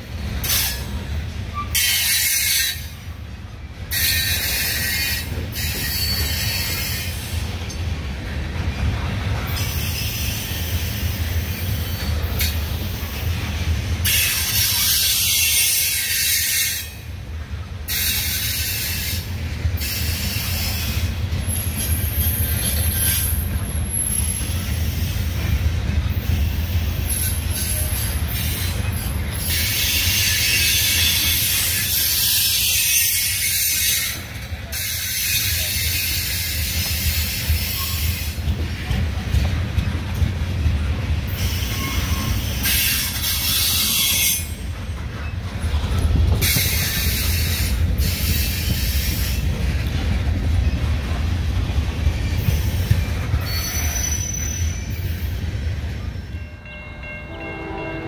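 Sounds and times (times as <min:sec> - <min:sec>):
train wheels rumbling on rail: 0:00.0 - 0:58.0
wheel squeal: 0:04.0 - 0:07.2, 0:41.3 - 0:45.6, 0:52.1 - 0:55.5.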